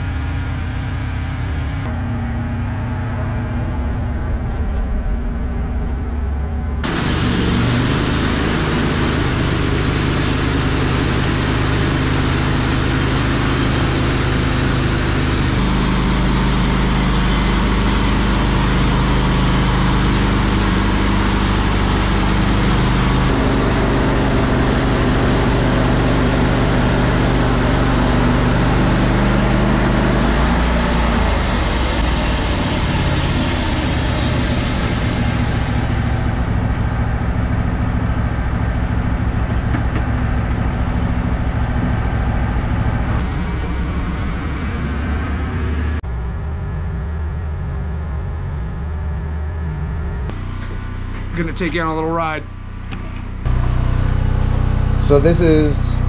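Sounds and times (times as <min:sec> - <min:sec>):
bandsaw mill cutting log: 0:06.8 - 0:36.7, 0:50.3 - 0:56.0.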